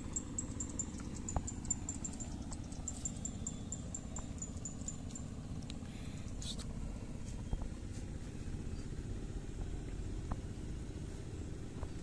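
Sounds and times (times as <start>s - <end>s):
high-pitched chirping: 0.0s - 5.4s
low rumble: 0.0s - 12.0s.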